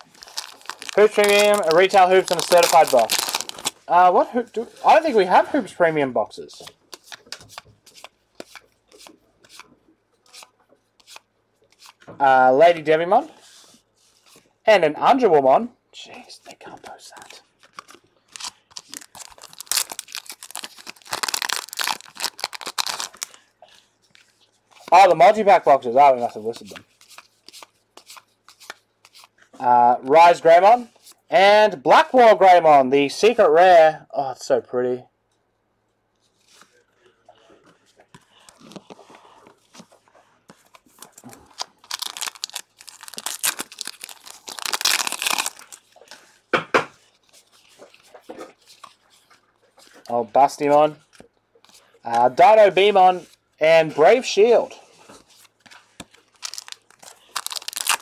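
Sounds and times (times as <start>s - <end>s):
foil wrapper crinkling and tearing: 0.0s - 3.9s, 17.6s - 23.5s, 40.8s - 46.3s, 55.6s - 58.0s.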